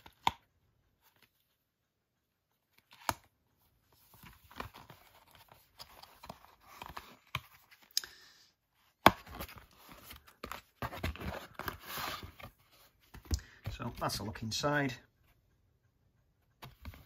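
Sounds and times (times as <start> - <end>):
card and paper rustling: 2.6 - 8.0, 8.8 - 14.4, 16.6 - 17.0.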